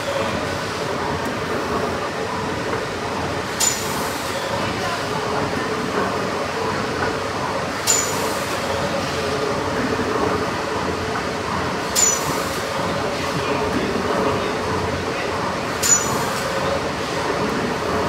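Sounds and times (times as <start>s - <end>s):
steam engine churning: 0.0s - 18.0s
sharp metallic clink: 7.9s - 8.2s, 12.0s - 12.3s.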